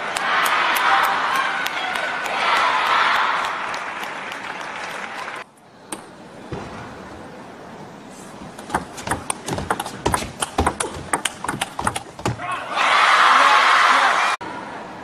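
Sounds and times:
arena ambience: 0.0 - 15.0
audience applause: 0.1 - 5.4
table tennis ball clicks: 8.6 - 12.4.

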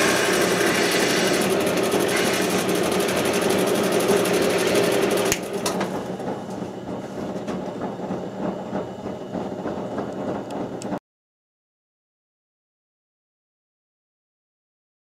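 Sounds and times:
wood lathe cutting wood: 0.0 - 6.2
machine hum: 0.0 - 11.0.

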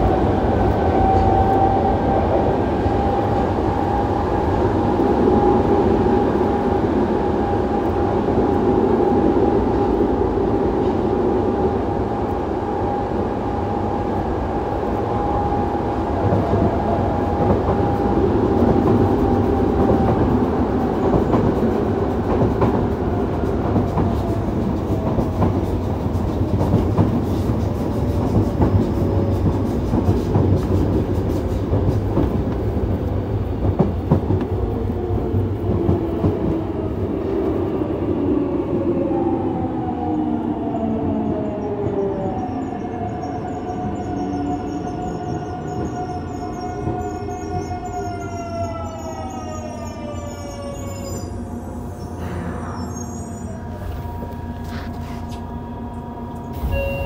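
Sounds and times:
train rolling rumble: 0.0 - 57.0
train traction motor whine: 51.2 - 57.0.

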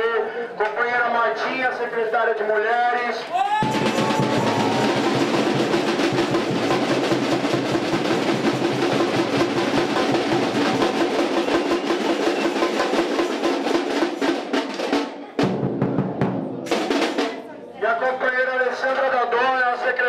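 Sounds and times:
drums and percussion: 3.4 - 17.8.

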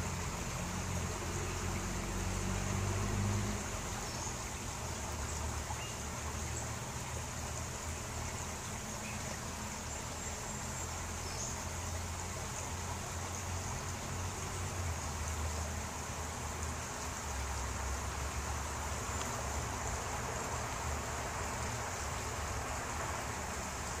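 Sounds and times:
flowing creek water: 0.0 - 24.0.

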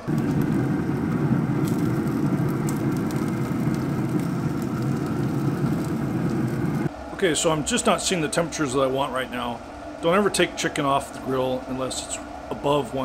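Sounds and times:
low rumbling noise: 0.0 - 7.2.

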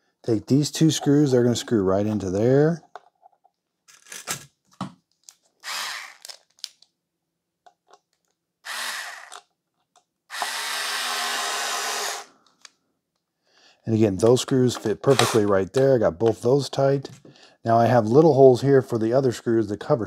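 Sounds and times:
electric screwdriver driving screw: 5.6 - 6.3, 8.7 - 9.4, 10.3 - 12.3, 15.1 - 15.5
handling clicks and taps: 14.2 - 17.3.

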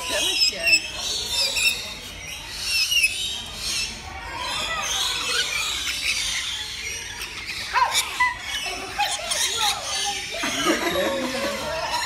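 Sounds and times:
birds chattering and screeching: 0.0 - 12.0.

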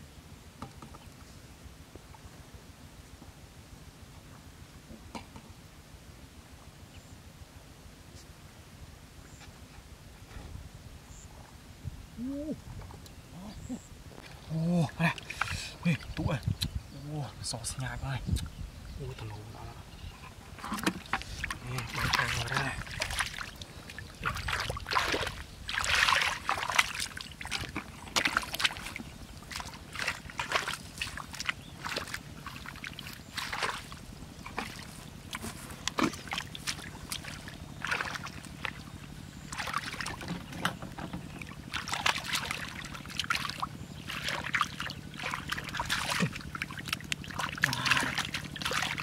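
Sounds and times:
splashing in muddy water: 13.4 - 16.5, 19.1 - 49.0.

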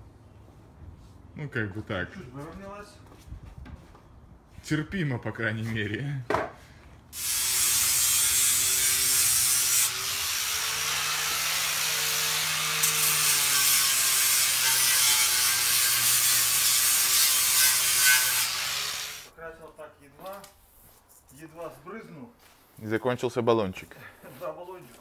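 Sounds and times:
power tool grinding wood: 7.2 - 19.3.

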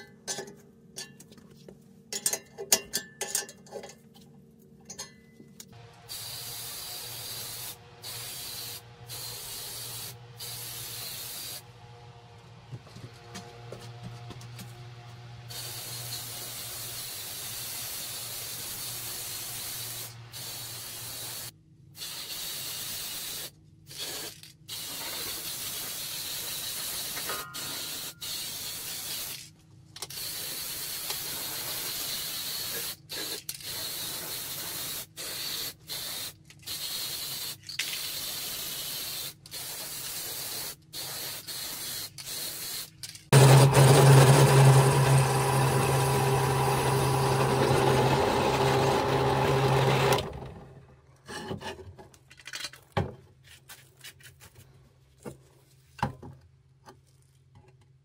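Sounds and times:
motor hum: 5.8 - 17.0, 43.4 - 51.0
spray paint can hissing: 6.1 - 11.6, 15.5 - 29.5, 30.1 - 43.3.

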